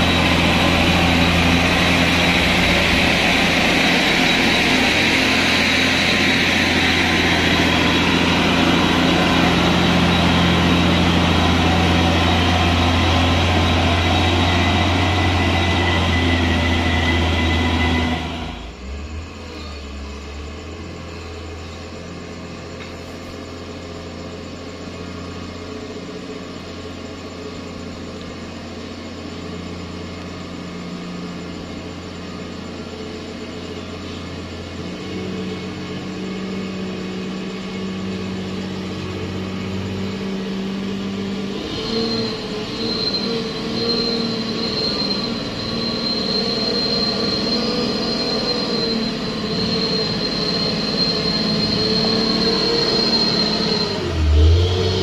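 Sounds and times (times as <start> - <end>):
high-pitched whine: 0.0 - 55.0
truck diesel engine labouring: 0.0 - 55.0.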